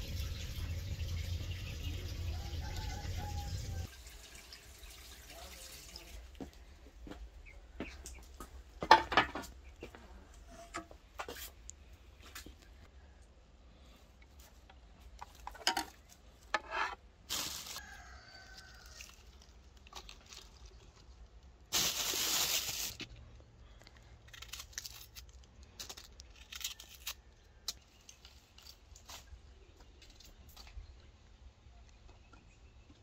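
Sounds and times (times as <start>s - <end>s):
herbs rustling in plastic bowl: 17.3s - 17.9s, 21.7s - 23.1s
tearing rustle: 17.3s - 23.1s, 24.0s - 29.3s.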